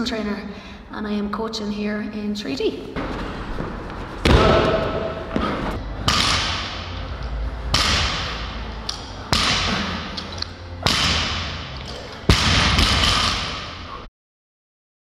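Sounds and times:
heavy workout thuds echoing: 3.0s - 7.0s, 7.6s - 13.8s.

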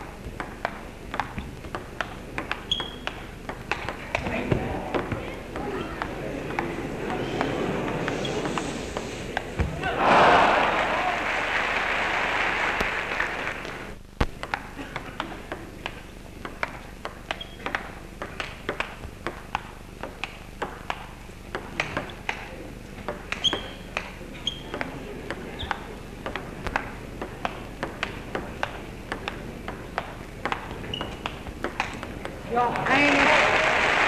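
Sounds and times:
table tennis ball clicking: 0.3s - 8.1s, 13.6s - 33.0s
applause: 10.0s - 13.9s, 32.8s - 34.0s.

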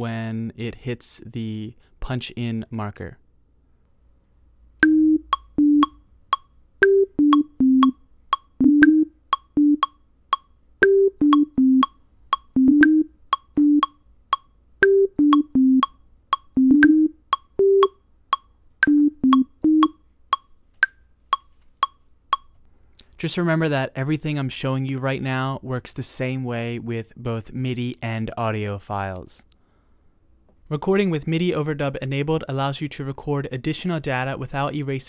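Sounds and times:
synthesizer plucky melody: 4.8s - 6.0s, 6.8s - 10.0s, 10.8s - 14.0s, 14.8s - 18.0s, 18.8s - 20.0s
metronome clicking: 4.8s - 22.6s.

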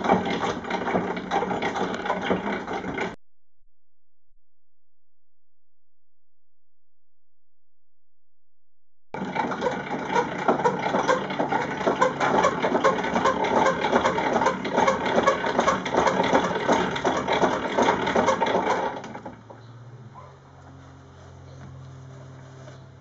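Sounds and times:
butter churn clattering: 0.0s - 3.2s, 9.2s - 19.3s.

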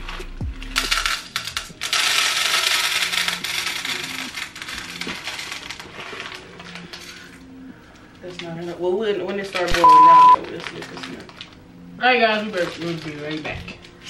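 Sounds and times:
wax beads rattling into pot: 0.0s - 7.4s, 10.4s - 11.6s, 12.2s - 14.0s
packet crinkling: 0.0s - 11.6s, 12.2s - 14.0s.

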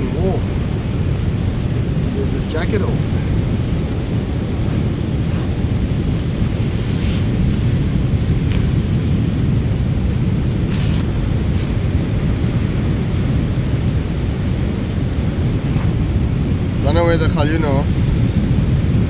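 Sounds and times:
sea surf: 0.0s - 19.0s
wind buffeting microphone: 0.0s - 19.0s
rain jacket rustling: 6.6s - 8.8s.

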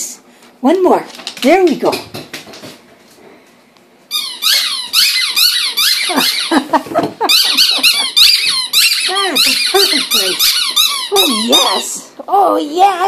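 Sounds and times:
squeaky toy squeaks: 4.1s - 6.6s, 7.3s - 12.0s.

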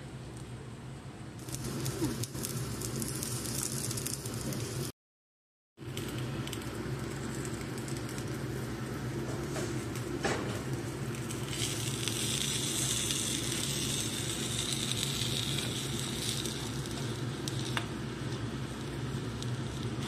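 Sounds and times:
food sizzling in a pan: 1.4s - 4.9s, 5.9s - 20.0s
steady low hum: 5.8s - 20.0s.

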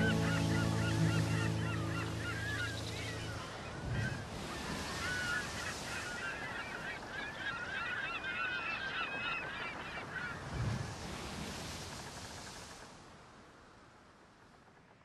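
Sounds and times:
held musical chord: 0.0s - 3.8s
flock of birds calling: 0.0s - 10.4s.

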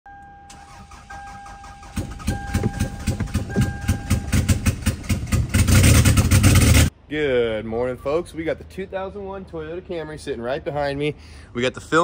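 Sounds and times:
dashboard warning chime: 0.1s - 4.8s
engine cranking by starter: 0.5s - 6.9s.

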